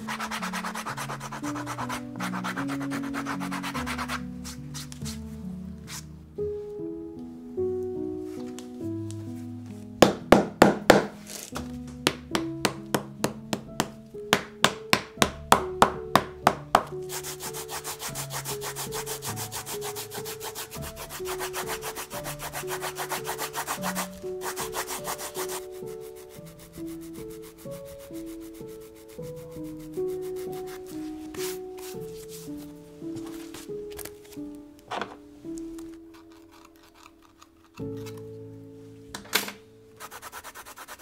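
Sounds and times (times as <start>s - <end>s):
background music: 0.0s - 41.0s
rhythmic rubbing strokes: 17.1s - 32.5s.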